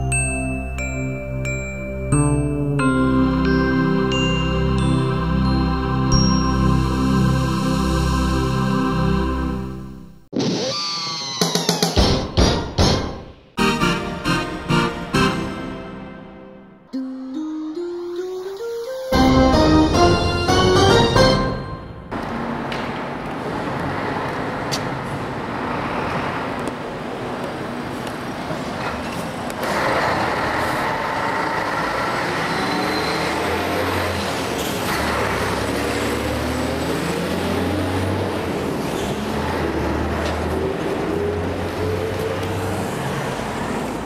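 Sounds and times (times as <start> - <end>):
motor vehicles passing: 22.1 - 44.0.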